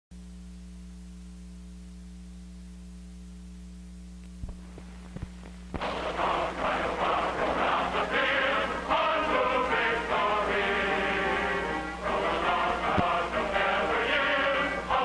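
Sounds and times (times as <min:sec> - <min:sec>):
steady electrical hum: 0:00.1 - 0:15.0
music with singing voices: 0:05.8 - 0:15.0.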